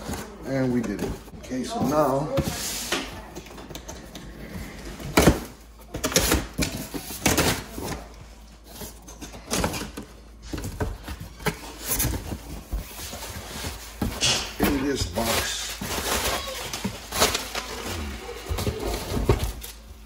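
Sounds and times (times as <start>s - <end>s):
packing tape tearing: 14.2s - 19.9s.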